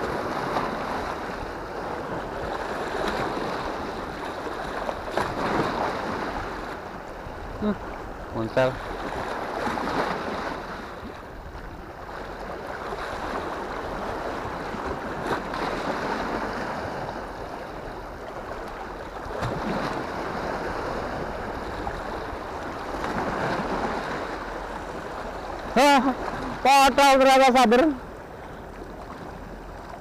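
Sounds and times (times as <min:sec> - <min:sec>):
waves washing against rocks: 0:00.0 - 0:06.9, 0:12.0 - 0:28.0.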